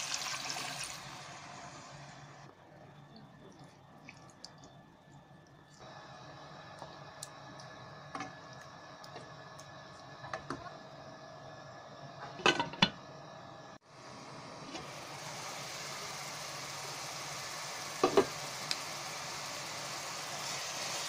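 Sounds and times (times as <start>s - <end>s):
meat simmering hiss: 13.9s - 21.0s.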